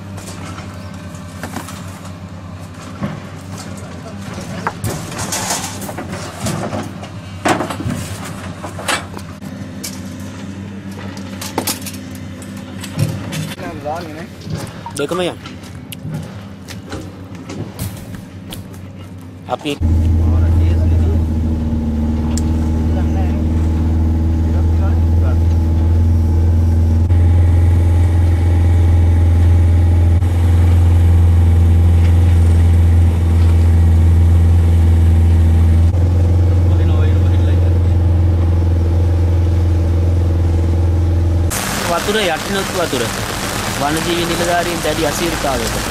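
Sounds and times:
engine hum: 0.0s - 45.9s
outboard motor droning: 18.3s - 45.9s.

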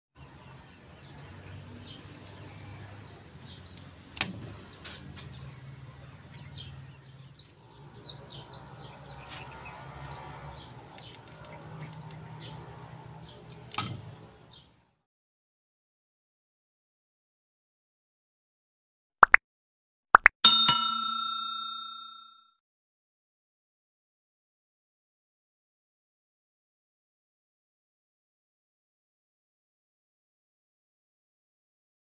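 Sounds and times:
small birds chirping: 0.2s - 15.0s.

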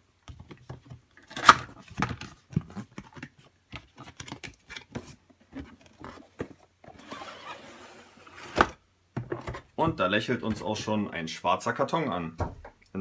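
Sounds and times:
cardboard rustling: 0.4s - 9.8s.

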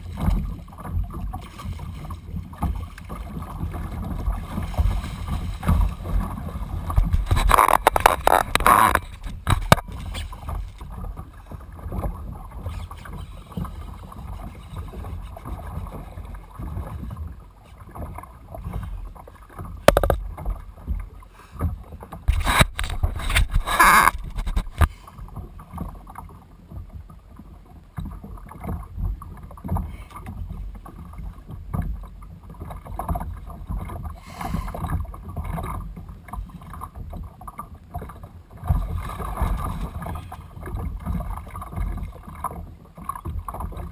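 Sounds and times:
wind rumbling on microphone: 0.0s - 19.0s, 19.6s - 25.9s
water sloshing against hull: 0.0s - 43.9s
water splashes: 0.0s - 43.9s
sharp knocks: 19.9s - 20.2s.

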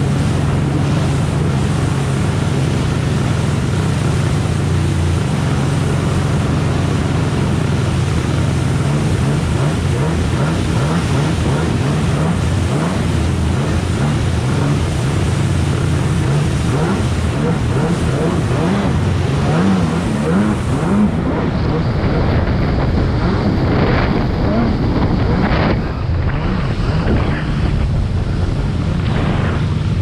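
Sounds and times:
water spray: 0.0s - 21.4s
jet ski engine running hard: 0.0s - 30.0s
wind rushing: 17.0s - 30.0s.

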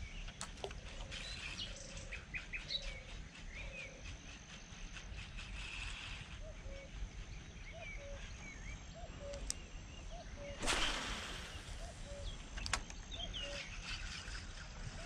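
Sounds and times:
bird chirps: 6.4s - 15.0s
fishing line cast swish: 10.6s - 12.3s.

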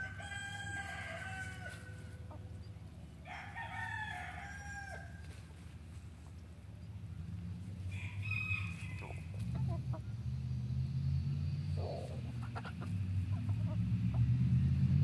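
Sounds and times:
rooster crowing: 0.0s - 2.2s, 3.2s - 5.2s, 7.9s - 9.4s
chickens clucking: 0.7s - 3.2s, 8.5s - 10.5s, 11.6s - 14.4s.

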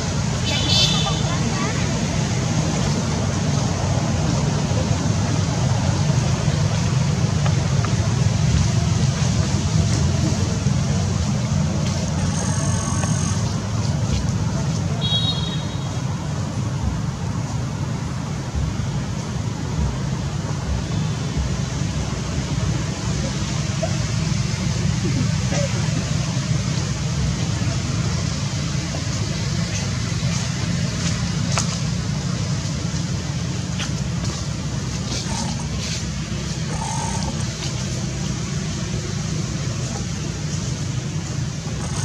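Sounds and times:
steady low rumble: 16.2s - 42.0s.

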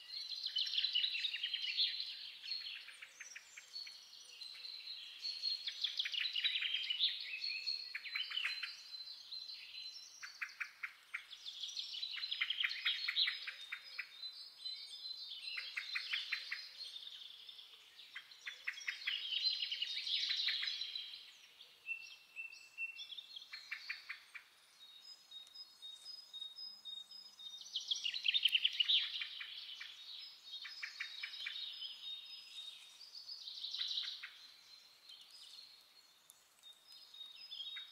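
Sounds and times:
songbirds trilling: 14.8s - 37.9s.

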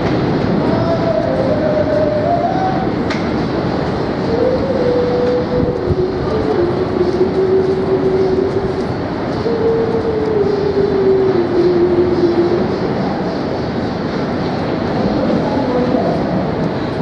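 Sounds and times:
subway train rail rumble: 0.0s - 17.0s.

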